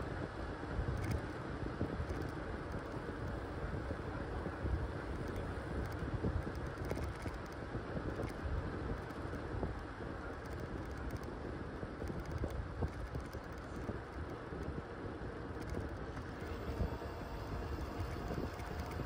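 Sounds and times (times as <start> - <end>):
bicycle road noise: 0.0 - 19.0
wind on microphone: 0.0 - 19.0.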